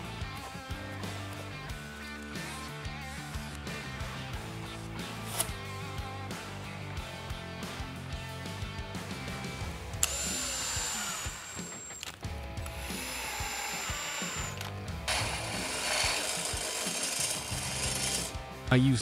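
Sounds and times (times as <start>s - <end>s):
background music: 0.0s - 19.0s
power drill whining: 10.0s - 18.4s
rushing tool noise: 10.0s - 18.4s.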